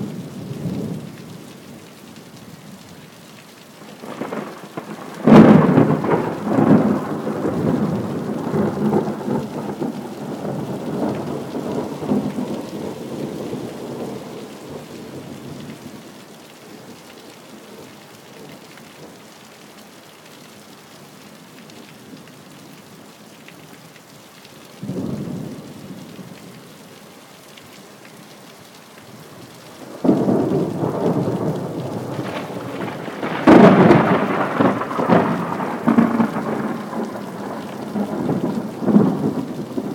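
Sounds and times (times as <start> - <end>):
steady rain: 0.0 - 39.9
thunder rumbling: 4.0 - 15.2, 29.8 - 39.9.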